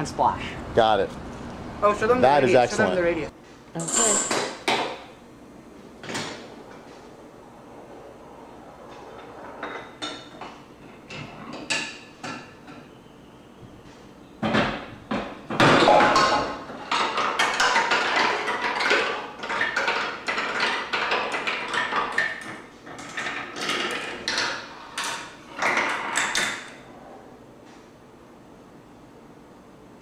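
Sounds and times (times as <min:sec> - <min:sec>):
marbles rolling through wooden tracks: 0:15.6 - 0:26.7.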